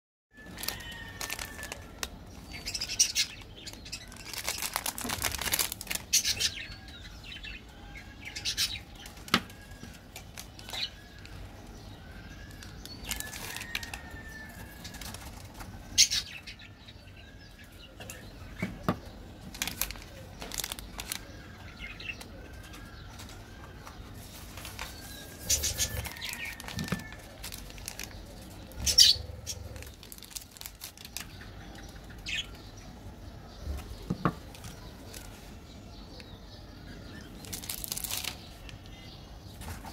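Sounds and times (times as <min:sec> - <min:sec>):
plastic wrappers crinkling and tearing: 0:00.4 - 0:06.7, 0:08.4 - 0:11.7, 0:12.4 - 0:16.2, 0:19.4 - 0:22.3, 0:24.2 - 0:32.4, 0:33.8 - 0:35.6, 0:37.2 - 0:39.0
bird chirping: 0:06.0 - 0:39.9.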